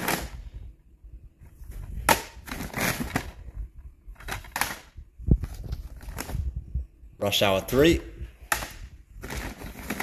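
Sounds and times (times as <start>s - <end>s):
plastic cases clacking: 8.5s - 10.0s.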